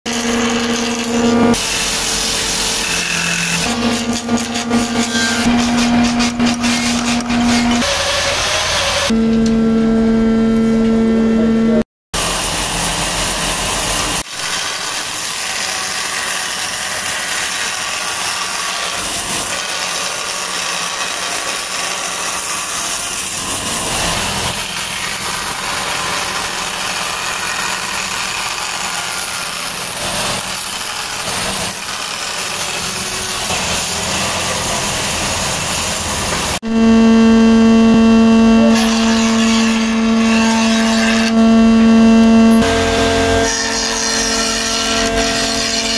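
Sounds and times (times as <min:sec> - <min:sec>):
hissing machine noise: 0:12.2 - 0:45.9
planer motor humming: 0:21.7 - 0:45.9.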